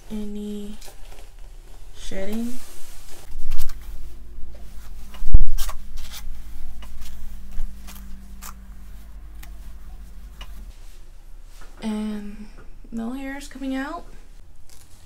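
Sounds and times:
steady low hum: 0:00.0 - 0:15.0
brush stroking wig hair: 0:00.8 - 0:11.1.

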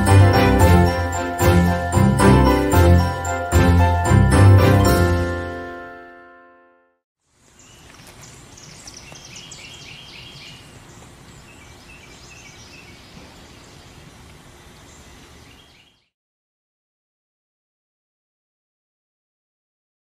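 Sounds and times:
small birds chirping: 0:07.3 - 0:16.1.

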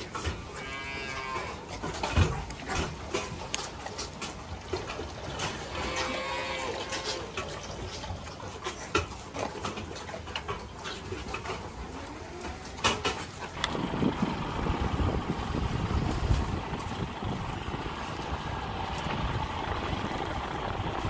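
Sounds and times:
calves mooing: 0:00.2 - 0:01.7, 0:05.6 - 0:07.4.

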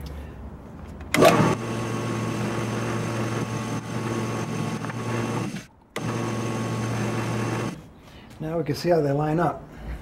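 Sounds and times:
drill press motor running: 0:01.2 - 0:07.8.

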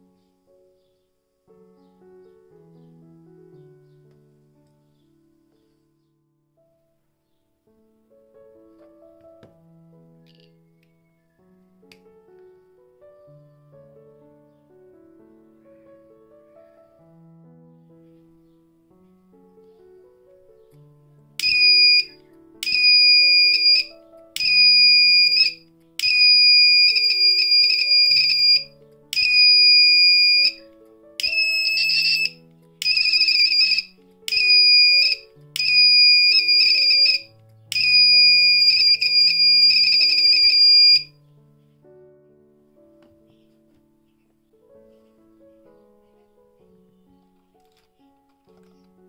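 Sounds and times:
fire alarm buzzer beeping: 0:21.4 - 0:28.6, 0:29.2 - 0:30.6, 0:31.2 - 0:41.1.

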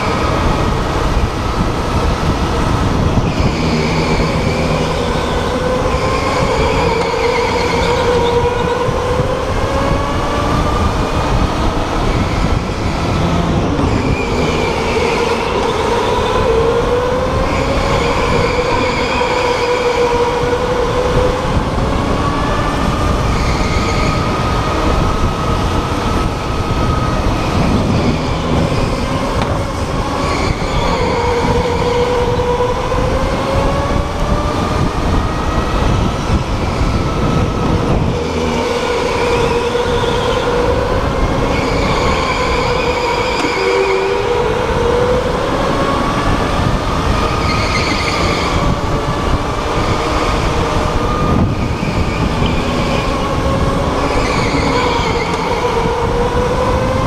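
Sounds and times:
rumble of tyres and wind: 0:00.0 - 0:57.0
tyre squeals: 0:54.0 - 0:55.7.

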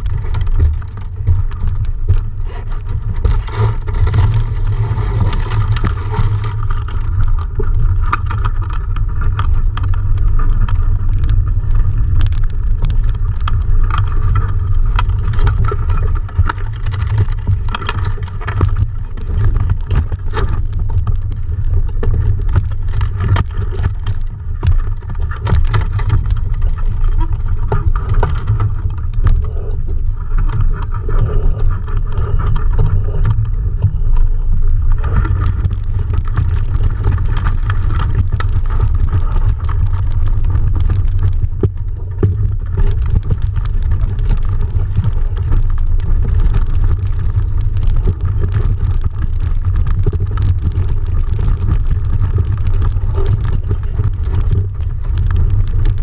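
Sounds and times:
wind buffeting microphone: 0:00.0 - 0:56.0
knocks and rattles: 0:35.0 - 0:56.0.

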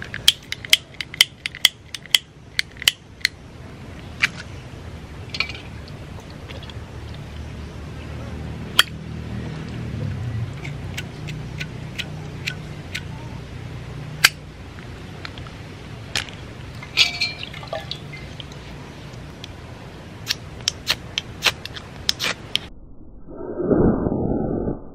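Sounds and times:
splash with glassy clink: 0:16.9 - 0:18.3.

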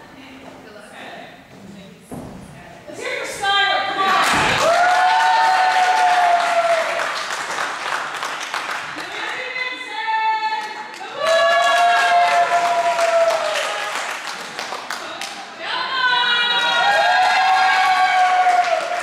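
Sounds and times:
crowd clapping: 0:04.2 - 0:09.5, 0:10.6 - 0:15.5, 0:16.4 - 0:19.0.

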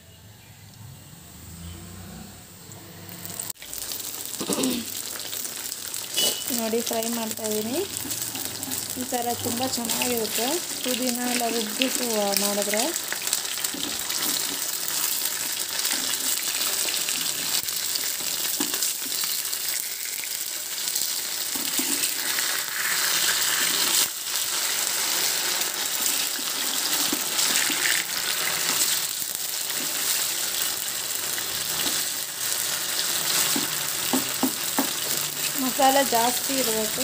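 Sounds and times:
fish sizzling in oil: 0:03.1 - 0:37.0.

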